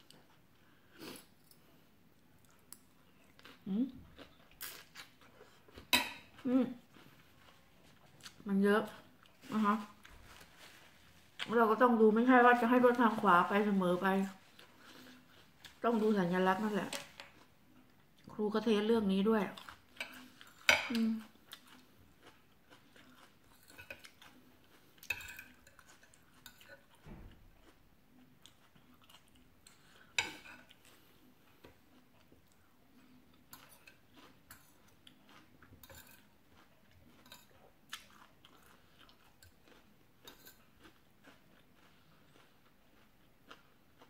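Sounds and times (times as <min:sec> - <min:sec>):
soft chewing: 0:00.0 - 0:44.0
cutlery clinking on plate: 0:05.9 - 0:06.3, 0:35.8 - 0:36.3.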